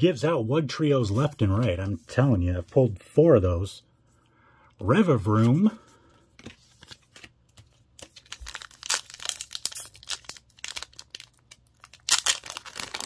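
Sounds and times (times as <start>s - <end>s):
foil wrapper crinkling and tearing: 8.0s - 13.0s.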